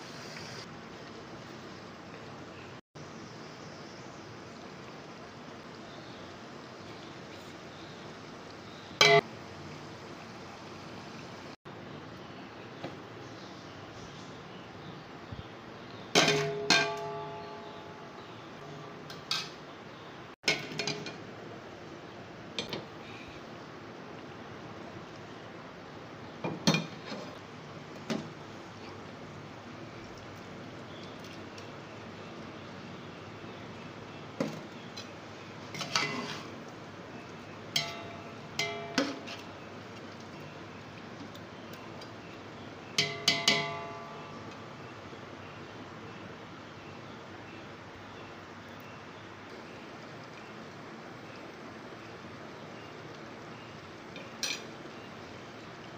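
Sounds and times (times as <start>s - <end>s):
spices frying in oil: 0.0s - 55.9s
metal utensil striking pot: 9.0s - 9.2s, 16.2s - 18.0s, 37.7s - 39.5s, 43.0s - 44.5s.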